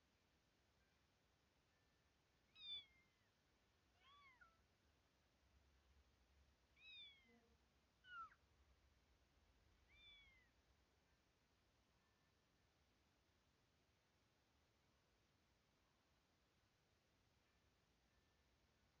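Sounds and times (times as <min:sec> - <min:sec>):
cat meowing: 0:02.6 - 0:03.1, 0:04.0 - 0:04.6, 0:06.8 - 0:07.4, 0:08.0 - 0:08.4, 0:09.9 - 0:10.5.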